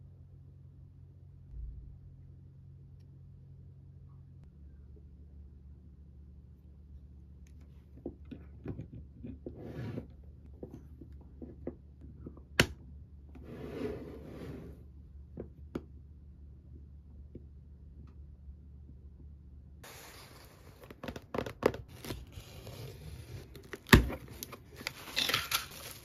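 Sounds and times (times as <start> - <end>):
rustling: 21.8 - 26.0.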